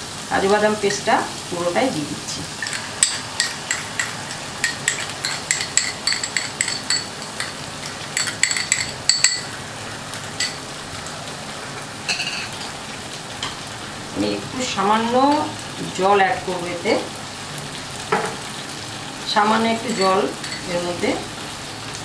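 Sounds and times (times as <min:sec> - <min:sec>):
sizzling in oil: 0:00.0 - 0:22.0
utensil clinking on glass bowl: 0:02.6 - 0:09.6, 0:10.4 - 0:10.6, 0:19.8 - 0:21.0.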